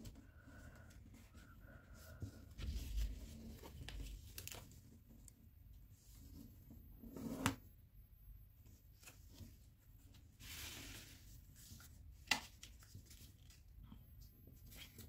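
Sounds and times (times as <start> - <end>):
paper rustling: 2.2 - 4.9.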